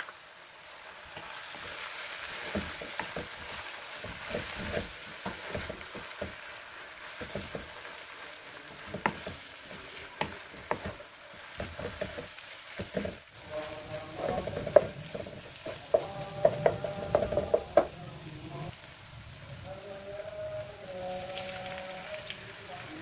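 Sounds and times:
food sizzling in hot oil: 0.0 - 23.0
spatula knocking and scraping wok: 1.1 - 18.0.

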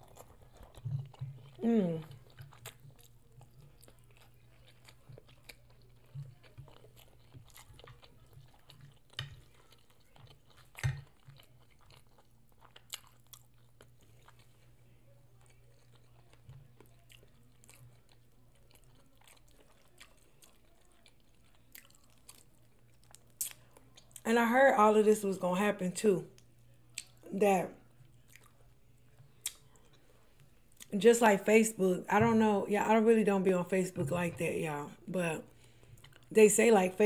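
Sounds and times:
person chewing: 0.0 - 24.2, 26.4 - 27.2, 28.0 - 30.9, 35.6 - 36.3.

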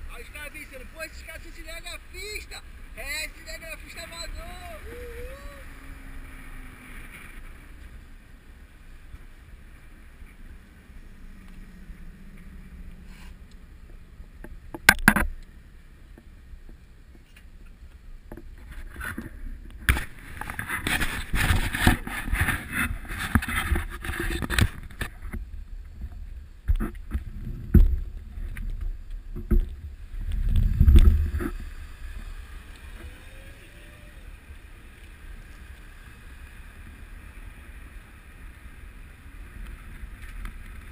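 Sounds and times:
low road rumble: 0.0 - 40.9
bicycle knocks and rattles: 14.4 - 15.4
wind rushing over camera: 16.5 - 40.9.

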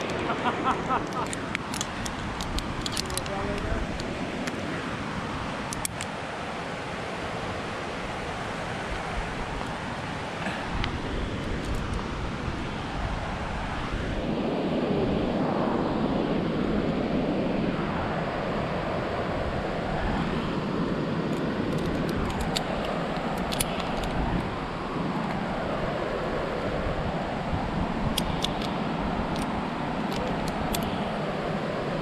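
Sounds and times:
wind gusting over microphone: 0.0 - 32.0
climbing gear clinking: 1.0 - 4.1.

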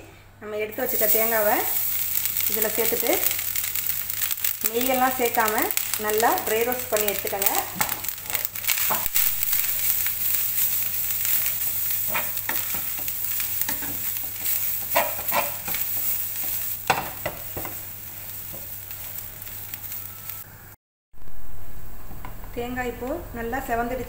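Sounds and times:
wooden spatula scraping pan: 13.7 - 16.1.

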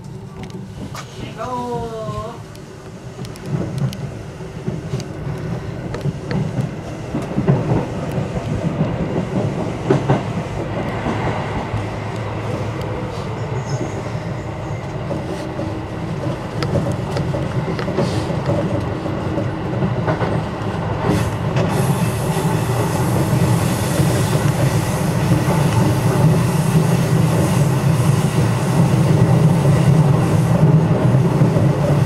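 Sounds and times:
train rumbling: 0.0 - 32.0
wheels clicking over rail joints: 14.8 - 32.0.

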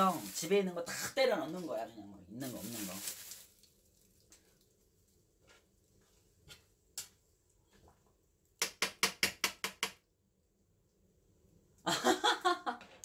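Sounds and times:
person speaking: 0.0 - 3.2.

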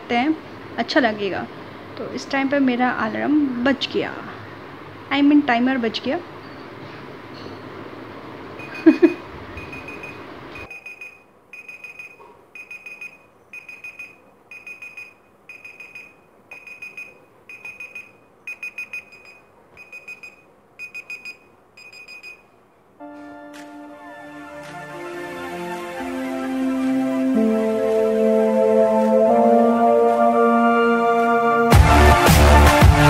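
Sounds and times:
rapid high alarm beeps: 8.6 - 9.0, 9.6 - 22.5.

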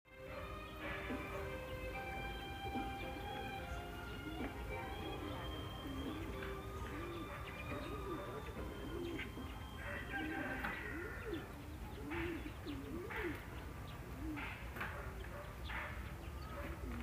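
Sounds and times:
pigeons cooing: 0.2 - 17.0
high bird chirps: 2.2 - 14.0.

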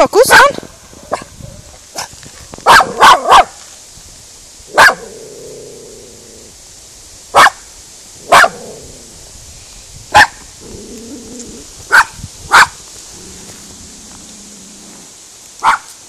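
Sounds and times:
puppy barking: 0.3 - 3.6, 4.7 - 5.1, 7.4 - 7.6, 8.3 - 8.6, 10.1 - 10.4, 11.9 - 12.8, 15.6 - 15.9.

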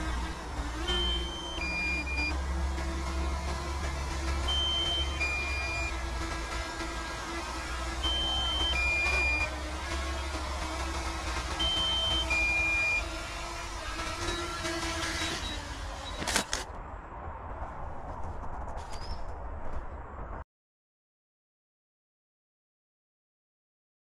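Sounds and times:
drone propellers whirring: 0.0 - 20.2
two-note warning beep: 0.9 - 2.4, 4.5 - 5.9, 8.0 - 9.5, 11.6 - 13.1.

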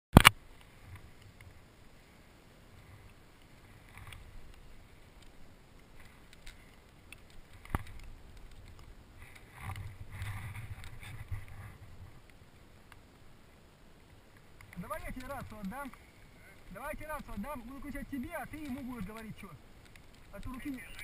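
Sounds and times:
sharp click: 0.2 - 0.4
gear handling rustle: 14.5 - 21.0.

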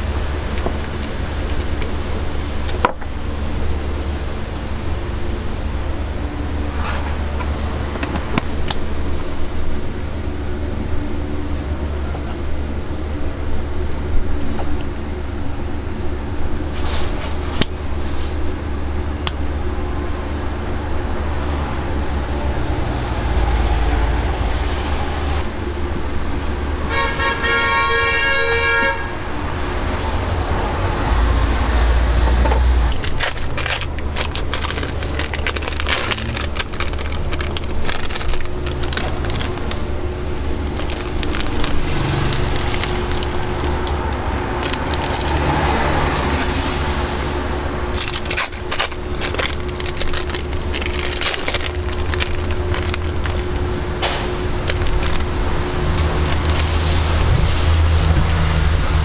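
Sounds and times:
low traffic rumble: 0.0 - 59.0
car horn: 26.8 - 29.4.

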